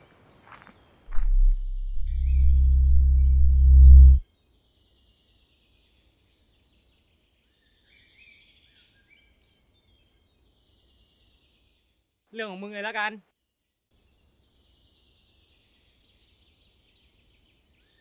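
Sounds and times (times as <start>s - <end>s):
low buzzy drone: 1.1s - 4.2s.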